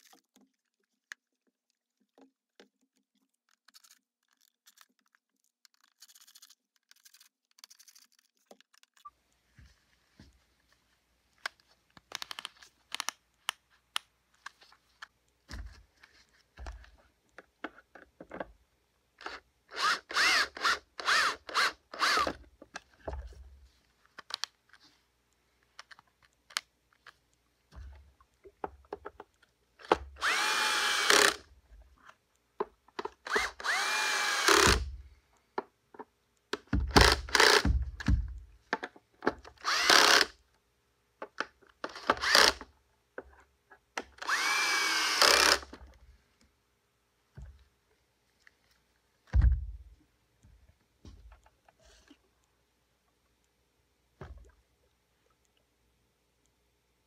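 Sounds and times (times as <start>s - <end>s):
small clicks: 0.0s - 9.4s, 11.4s - 15.4s, 24.0s - 38.6s
cordless drill whining: 19.2s - 22.4s, 30.2s - 31.4s, 33.2s - 34.9s, 36.9s - 37.8s, 39.6s - 40.3s, 41.9s - 42.6s, 44.2s - 45.8s.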